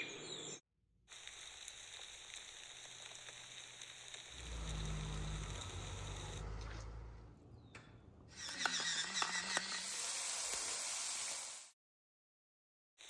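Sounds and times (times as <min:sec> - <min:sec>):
shrimp sizzling on a griddle: 0:01.1 - 0:04.4, 0:09.8 - 0:11.7
low rumble: 0:04.3 - 0:08.4.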